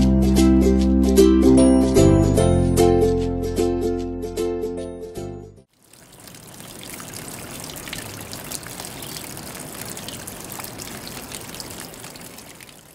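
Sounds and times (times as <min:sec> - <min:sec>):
fountain water trickling: 0:05.7 - 0:12.9.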